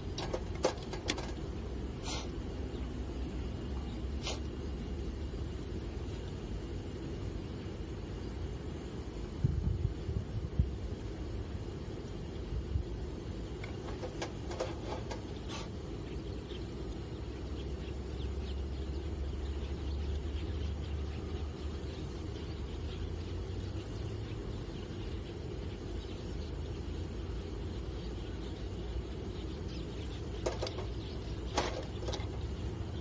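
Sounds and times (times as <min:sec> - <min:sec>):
wind rumble on microphone: 0:09.2 - 0:11.1, 0:12.3 - 0:15.2.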